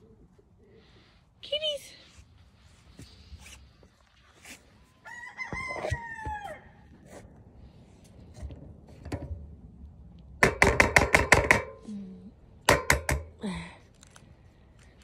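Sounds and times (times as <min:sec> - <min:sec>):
rooster crowing: 0:04.9 - 0:07.0.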